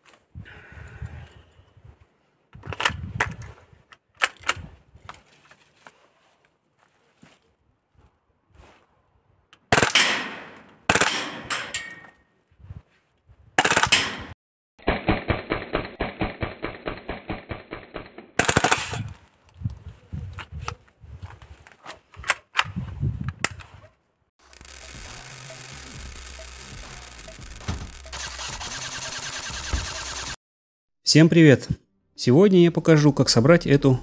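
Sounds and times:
gun handling clicks and knocks: 2.5 - 6.0, 21.6 - 22.7
pistol firing rapid bursts: 9.7 - 10.1, 13.6 - 14.1, 18.4 - 18.9, 28.1 - 30.4.

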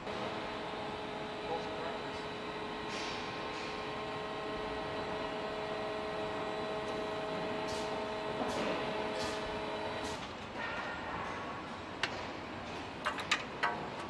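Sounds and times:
machine hum: 0.0 - 10.2
workshop background noise: 0.0 - 14.0.

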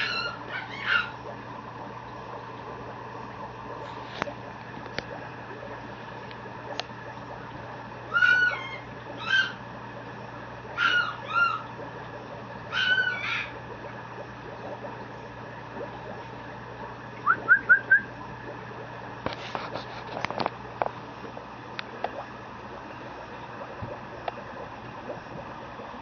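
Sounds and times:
puppy yipping: 0.0 - 1.2, 8.1 - 9.6, 10.8 - 11.7, 12.7 - 13.5.

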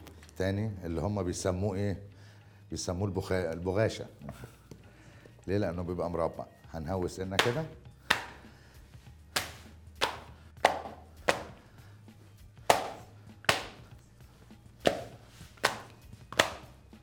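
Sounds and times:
dough slapped onto wooden board: 7.4 - 8.4, 9.3 - 11.6, 12.6 - 13.9, 14.8 - 16.8.

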